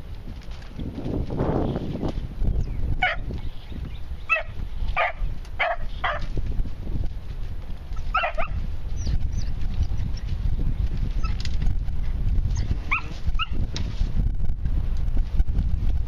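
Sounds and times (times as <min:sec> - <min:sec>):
hounds barking and yipping: 0:03.0 - 0:03.3, 0:04.3 - 0:06.3, 0:08.0 - 0:09.4, 0:12.5 - 0:13.6.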